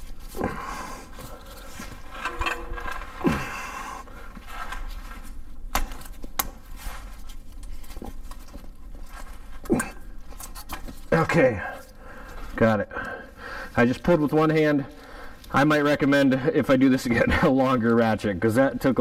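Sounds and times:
scraping and rubbing: 0.0s - 5.6s.

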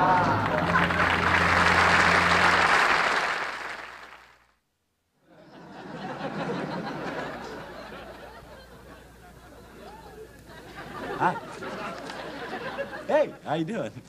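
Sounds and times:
audience applauding: 0.0s - 4.5s.

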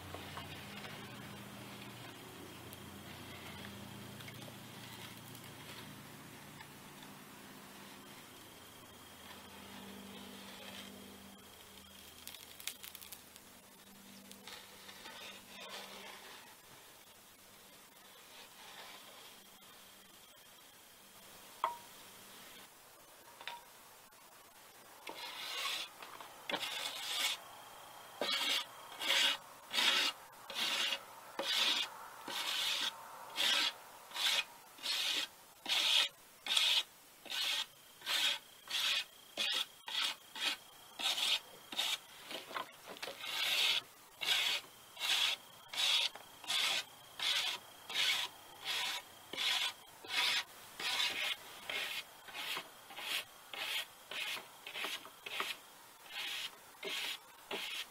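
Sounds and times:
wire brush scrubbing wood: 25.1s - 25.9s, 28.2s - 57.9s.

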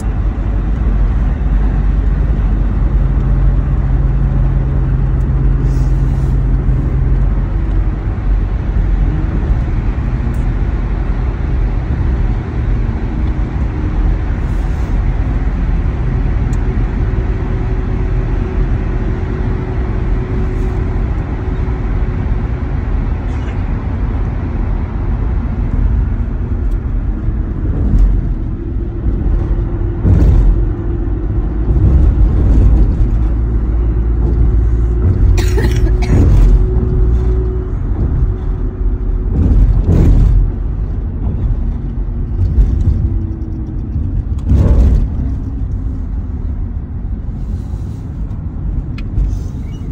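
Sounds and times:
van road and engine rumble: 0.0s - 49.9s
loud thumps: 29.4s - 30.8s, 39.2s - 43.1s.

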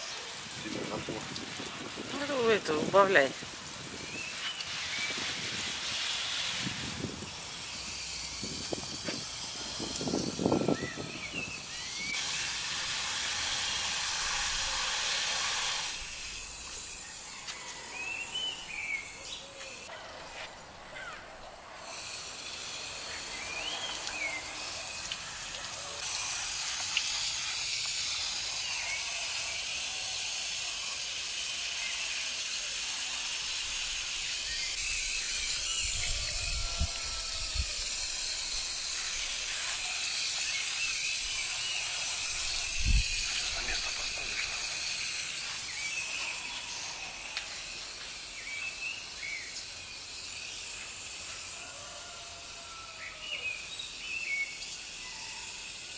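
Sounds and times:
high hiss: 0.0s - 55.9s
birds chirping: 9.8s - 12.2s, 16.0s - 21.8s, 22.9s - 26.0s, 38.5s - 50.8s.

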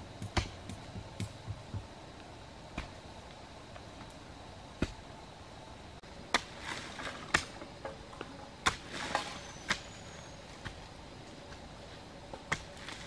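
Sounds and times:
hoe chopping into soil: 0.2s - 1.8s, 2.8s - 3.0s, 4.8s - 5.0s, 6.3s - 7.6s, 8.6s - 10.0s, 12.5s - 13.0s
loose earth scraping: 6.3s - 13.0s.

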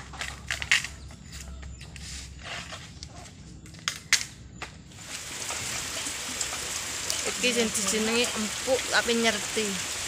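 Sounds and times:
bamboo knocking and clacking: 0.0s - 2.0s
bamboo rustling: 0.0s - 9.1s.

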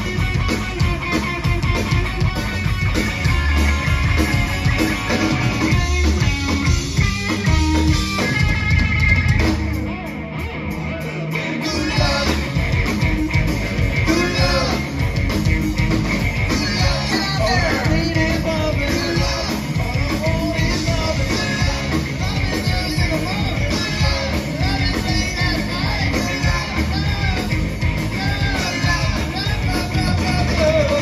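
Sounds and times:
rock band playing: 0.0s - 31.0s
man singing: 11.0s - 12.7s, 14.0s - 15.1s, 16.5s - 31.0s.

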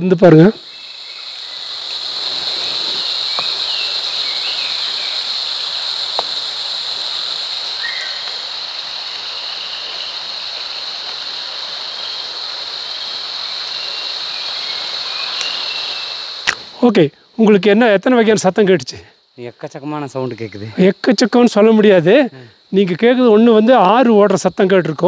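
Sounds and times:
faint bird chirps: 0.5s - 5.8s, 7.1s - 8.3s, 13.0s - 16.3s.

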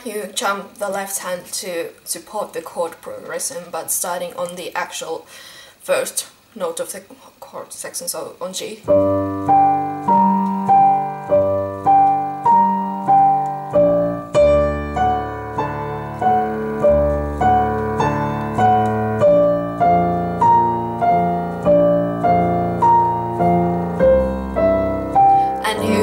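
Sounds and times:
deep piano bass part: 8.8s - 26.0s
piano chords and melody: 8.8s - 26.0s.

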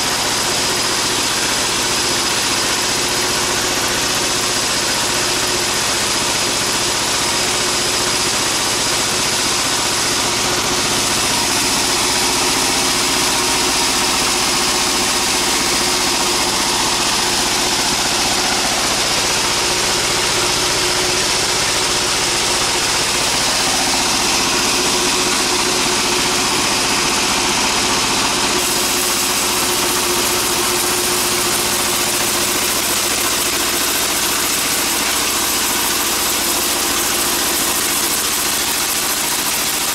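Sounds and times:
band saw running: 0.0s - 39.9s
high whine: 9.8s - 37.2s.

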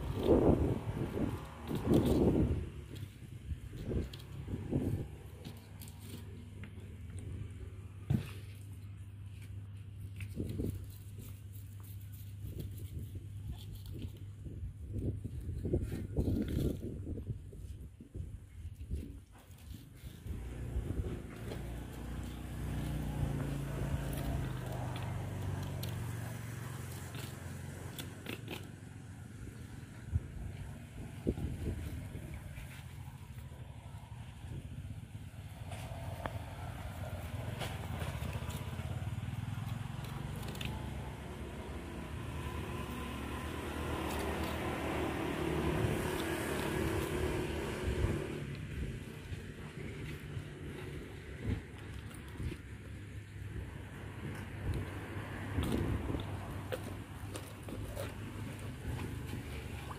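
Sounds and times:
motor engine running: 19.6s - 59.9s.

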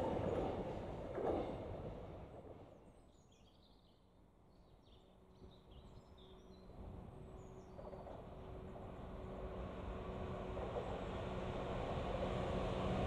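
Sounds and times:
freight train rumble: 0.0s - 2.8s, 5.8s - 13.0s
faint diesel locomotive hum: 0.0s - 3.4s, 5.1s - 13.0s.

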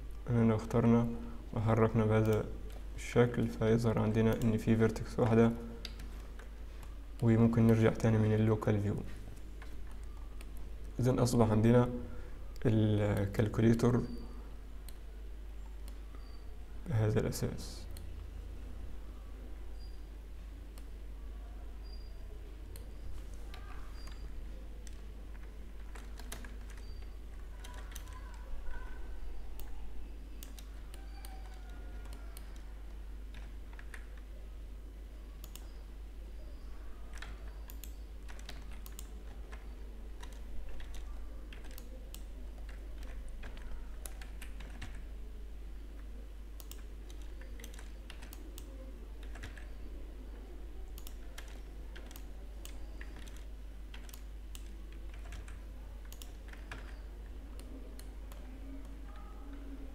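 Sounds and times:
keyboard and mouse clicking: 4.1s - 7.8s, 22.7s - 29.0s, 30.4s - 32.7s, 33.3s - 34.3s, 35.4s - 35.8s, 36.5s - 45.1s, 46.0s - 49.9s, 50.9s - 59.7s.

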